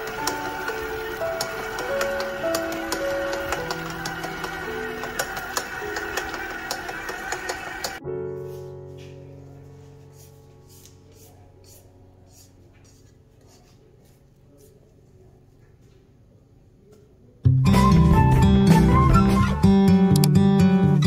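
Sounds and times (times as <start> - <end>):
busy music with sharp clicks: 0.0 - 8.0, 17.6 - 20.6
held chord: 0.0 - 9.0.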